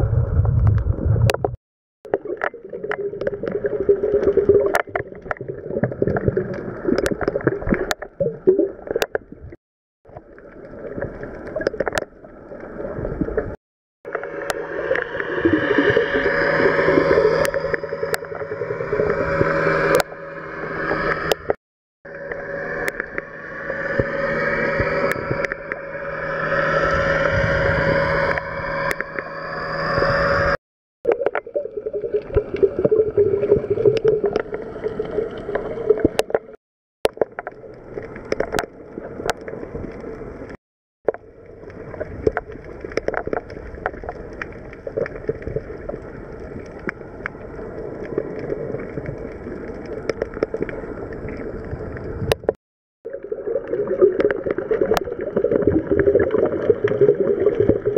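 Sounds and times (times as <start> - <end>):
underwater motorboat engine drone: 14.0 - 30.6, 33.4 - 52.6.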